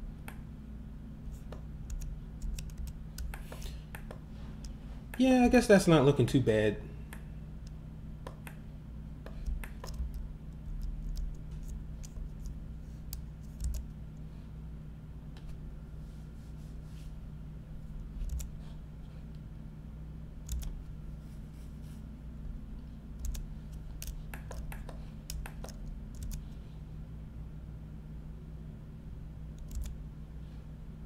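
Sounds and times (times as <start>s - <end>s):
steady low hum: 0.0s - 31.0s
keyboard and mouse clicks: 1.4s - 5.3s, 8.2s - 8.6s, 9.2s - 13.9s, 18.2s - 18.5s, 20.4s - 20.8s, 23.2s - 26.5s, 29.6s - 30.0s.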